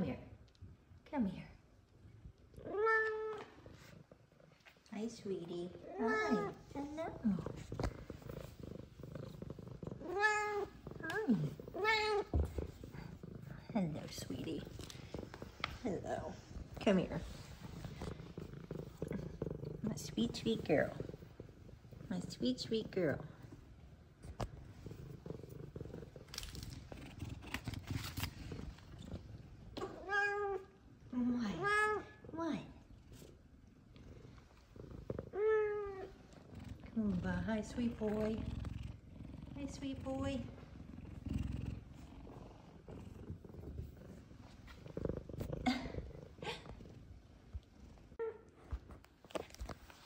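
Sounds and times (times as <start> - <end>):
cat purring: 0.0 - 50.0
hand rubbing fur: 10.6 - 19.4.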